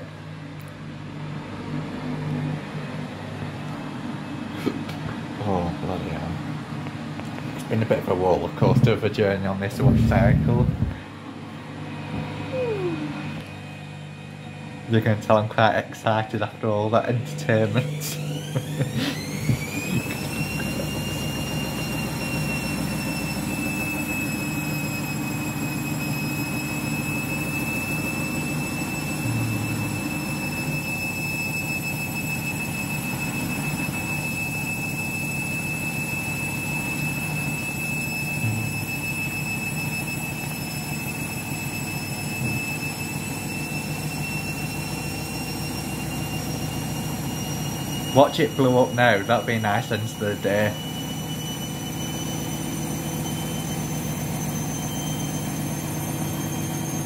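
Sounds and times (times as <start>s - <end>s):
washing machine motor whining: 0.0s - 57.0s
low steady hum: 8.6s - 18.3s, 29.2s - 30.3s.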